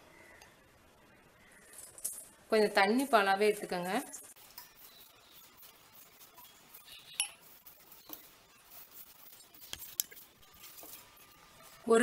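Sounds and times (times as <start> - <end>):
hand mixing in metal bowl: 3.5 - 12.0.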